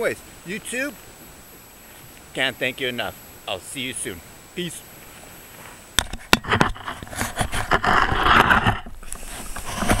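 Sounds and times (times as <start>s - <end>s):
rubbing and rustling on microphone: 5.0s - 10.0s.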